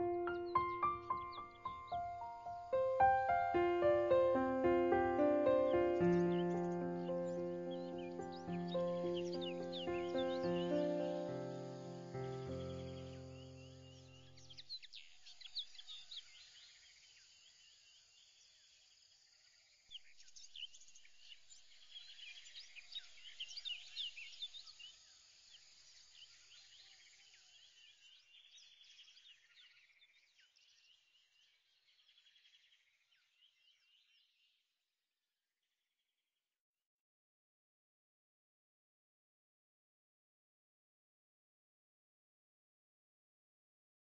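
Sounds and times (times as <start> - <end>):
faint chirping: 0.0 - 17.9.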